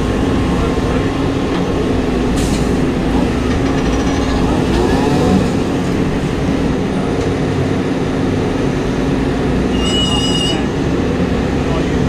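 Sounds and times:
heavy machinery droning: 0.0 - 9.8
high-pitched squeal: 3.2 - 5.8.

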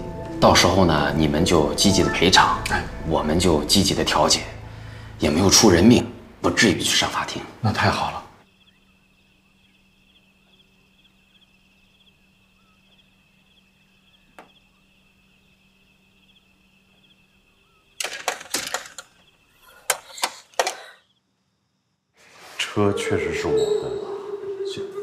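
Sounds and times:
high chirring of night insects: 0.0 - 25.0
faint steady hum: 1.0 - 18.4.

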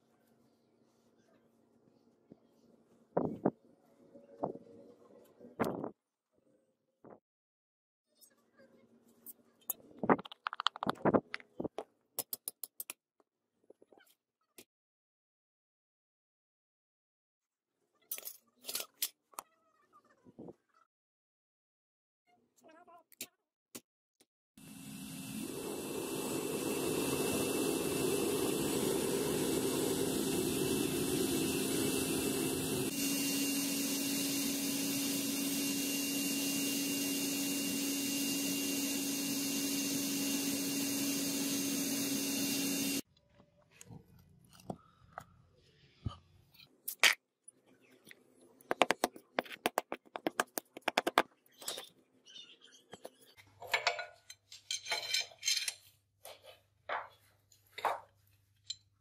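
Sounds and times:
gas burner roaring: 24.6 - 43.0.

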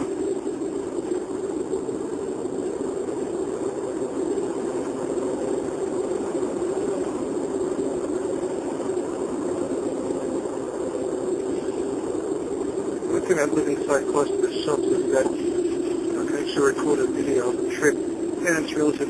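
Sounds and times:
car engine drone: 0.0 - 19.0
road noise: 12.8 - 19.0.

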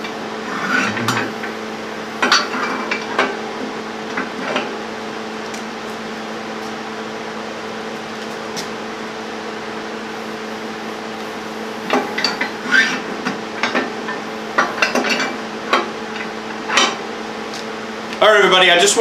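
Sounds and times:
steady hum: 0.0 - 19.0
steel clanking on steel: 0.5 - 1.5, 2.2 - 3.4, 11.8 - 17.0.

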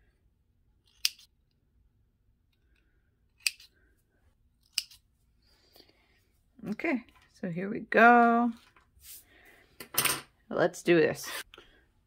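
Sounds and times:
thread snips cutting: 4.6 - 5.0.

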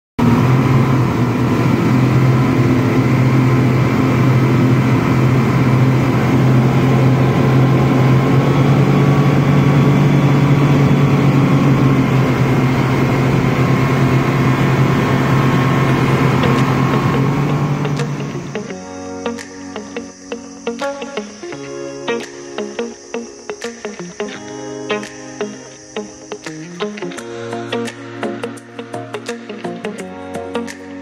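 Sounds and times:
outboard motors droning: 0.2 - 19.2.

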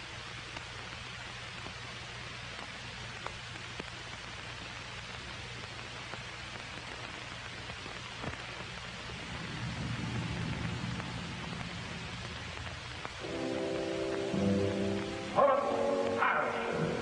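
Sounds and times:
film soundtrack hiss and crackle: 0.0 - 17.0
low hum: 8.9 - 17.0
low rumble: 9.0 - 15.4.

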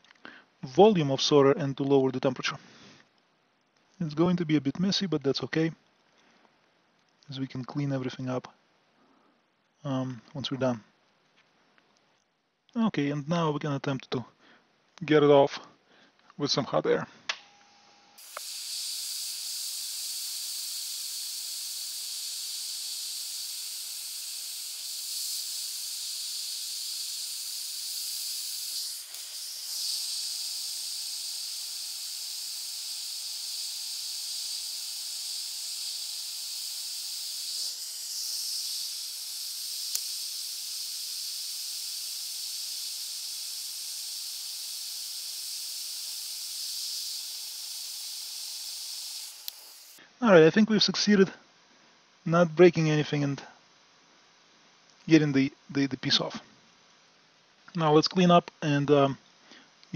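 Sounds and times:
hot air rework station hissing: 18.2 - 50.0.

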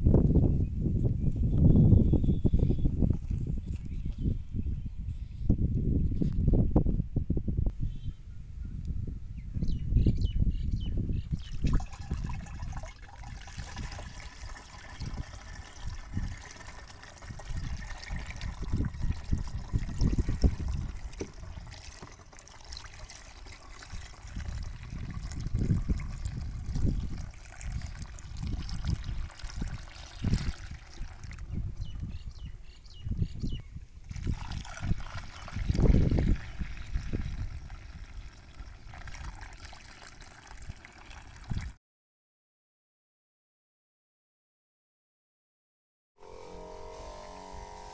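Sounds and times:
water trickling and splashing: 11.3 - 32.4, 34.0 - 41.8.

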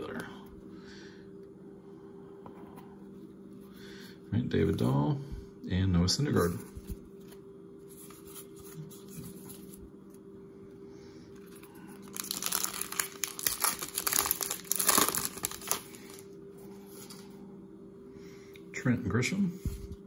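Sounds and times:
card pack wrapper tearing: 11.5 - 16.2.

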